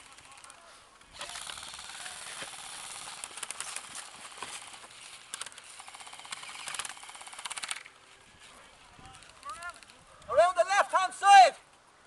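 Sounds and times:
airsoft rifles firing full auto: 0:00.0 - 0:04.8, 0:05.4 - 0:07.9.

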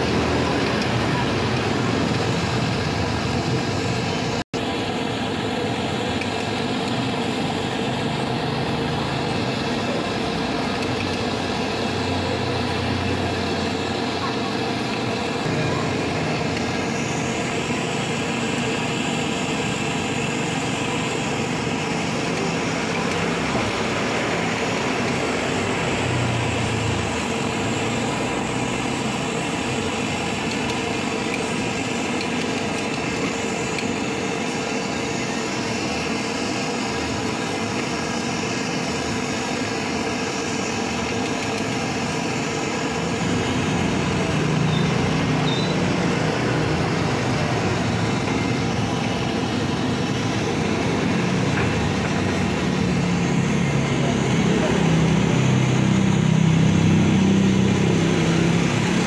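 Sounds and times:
roadside traffic rumble: 0:00.0 - 0:59.0.

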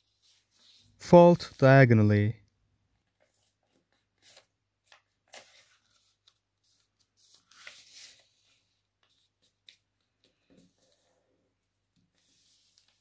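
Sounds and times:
paper rustling and crinkling: 0:03.0 - 0:11.2, 0:11.9 - 0:13.0.

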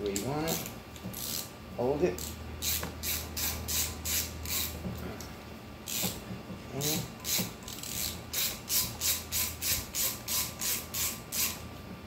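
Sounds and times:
ratchet wrench strokes: 0:00.5 - 0:01.5, 0:02.2 - 0:04.8, 0:05.8 - 0:06.2, 0:06.8 - 0:11.6.

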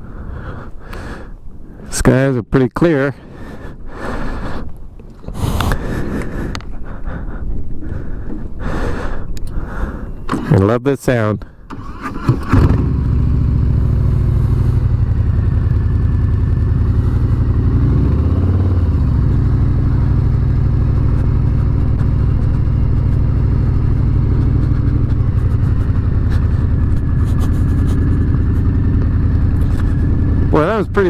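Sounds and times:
motorcycle engine pulsing: 0:11.7 - 0:31.0.

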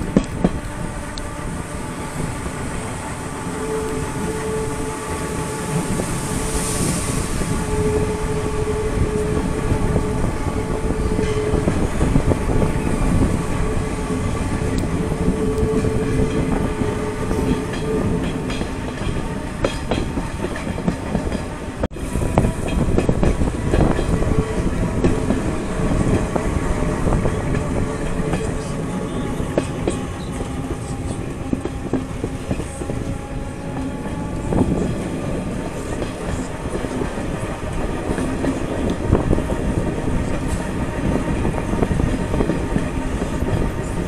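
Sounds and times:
train wheels rumbling on rail: 0:00.0 - 0:44.0.

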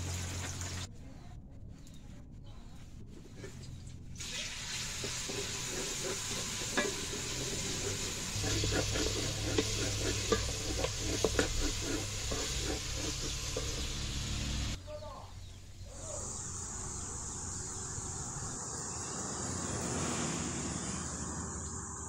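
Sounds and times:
tomatoes sizzling in oil: 0:00.0 - 0:00.9, 0:04.2 - 0:14.8
spoon scraping metal pot: 0:03.1 - 0:14.8.

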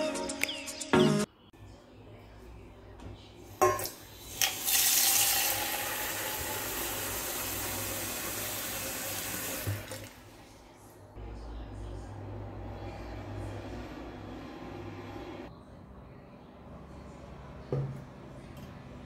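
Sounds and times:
water running from tap: 0:04.2 - 0:10.3.

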